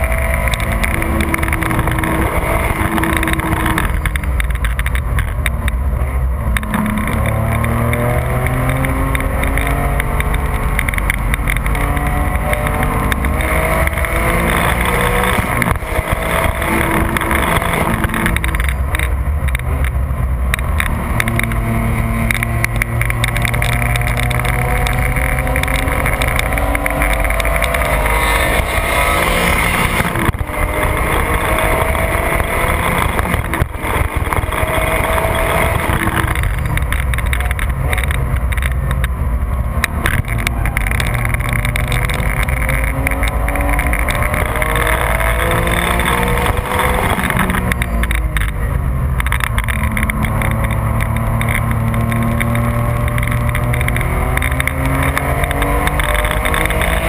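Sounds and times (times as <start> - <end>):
car engine accelerating: 0.0 - 57.0
wind and road noise: 0.0 - 57.0.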